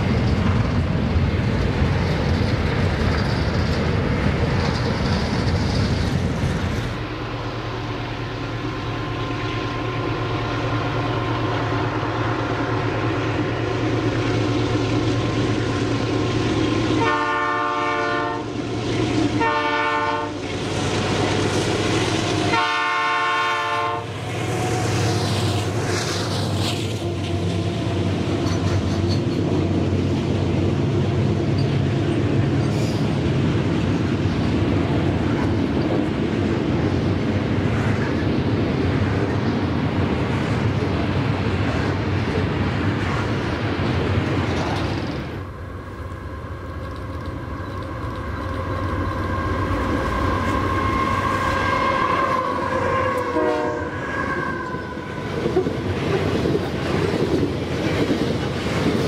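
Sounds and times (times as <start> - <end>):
freight wagons rolling on rails: 0.0 - 7.7, 24.2 - 53.2, 54.2 - 59.0
diesel locomotive running: 0.0 - 59.0
locomotive air horn blasts: 17.0 - 18.6, 19.4 - 20.4, 22.4 - 25.0, 50.4 - 54.9.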